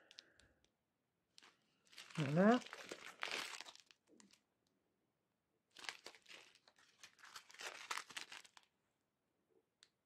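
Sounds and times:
plastic packets crinkling: 0:01.3 - 0:04.4, 0:05.7 - 0:08.7.

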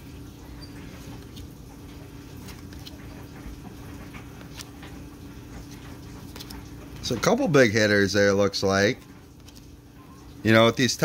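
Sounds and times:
steady low hum: 0:00.0 - 0:11.0
cards sliding and clicking: 0:00.8 - 0:05.0, 0:05.6 - 0:07.1, 0:09.4 - 0:09.8.

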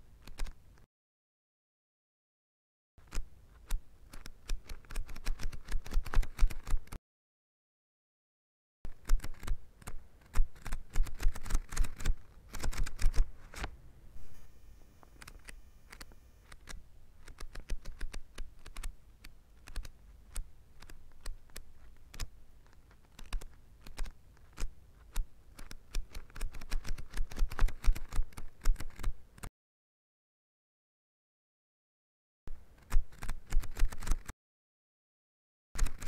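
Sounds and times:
book pages flipping: 0:03.0 - 0:07.0, 0:08.9 - 0:14.4, 0:15.1 - 0:29.5.

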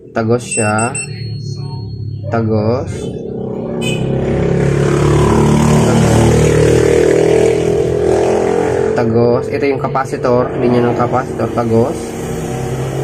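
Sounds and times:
motor vehicle engine running loudly: 0:01.8 - 0:13.0.

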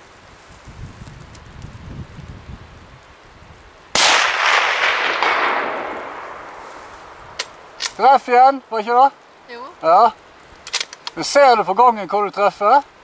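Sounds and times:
rifle shot echoing: 0:03.9 - 0:08.0.

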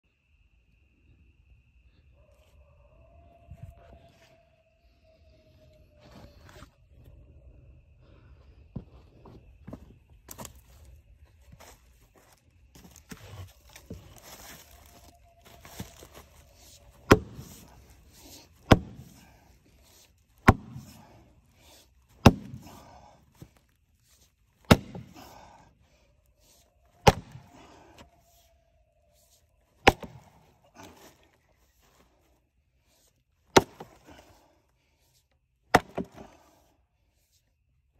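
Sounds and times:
maul chopping firewood: 0:12.2 - 0:23.6, 0:24.6 - 0:25.6, 0:26.5 - 0:28.1, 0:29.8 - 0:31.2, 0:33.5 - 0:34.4, 0:35.7 - 0:36.5.

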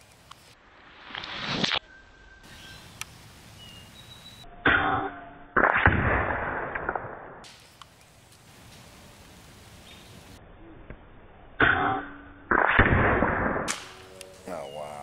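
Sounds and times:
air rifle firing: 0:12.5 - 0:14.0.

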